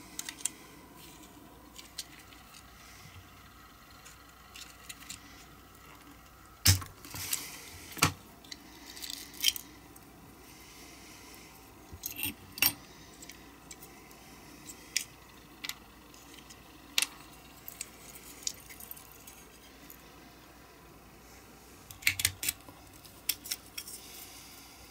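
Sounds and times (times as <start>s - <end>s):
small metal parts clicking: 8.4s - 9.6s, 21.9s - 24.1s.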